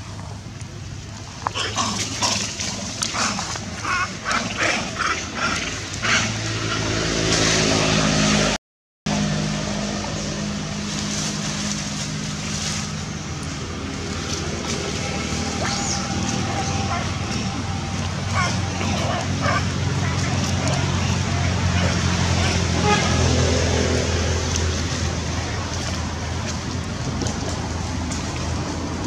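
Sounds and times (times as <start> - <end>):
low engine drone: 0.0 - 29.0.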